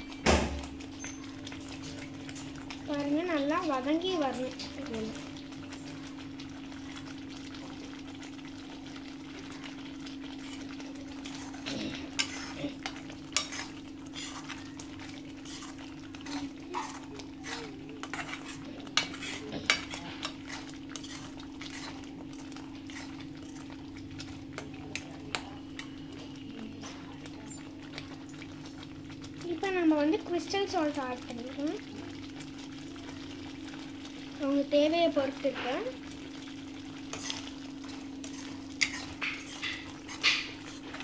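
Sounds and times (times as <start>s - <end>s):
metal spatula scraping a pan: 10.4s - 14.7s, 15.4s - 22.1s, 37.1s - 37.6s, 38.2s - 41.0s.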